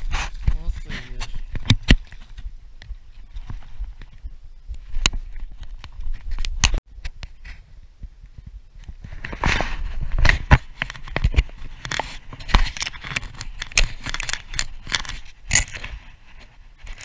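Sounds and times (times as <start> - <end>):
camera handling scrapes and clicks: 9.1 - 17.0.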